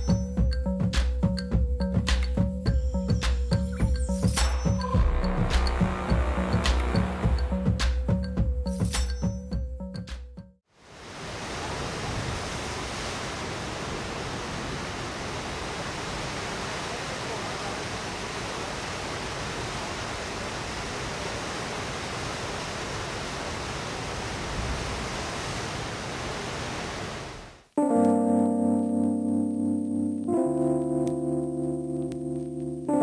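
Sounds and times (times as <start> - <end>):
water rushing: 10.8 - 27.6.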